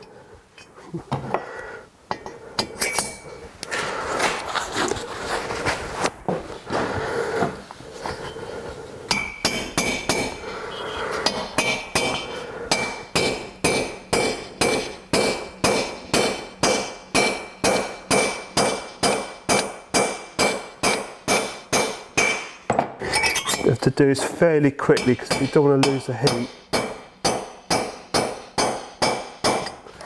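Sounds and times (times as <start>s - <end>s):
hammer tapping metal drift: 9.1s - 10.6s, 11.2s - 22.7s, 24.8s - 29.8s.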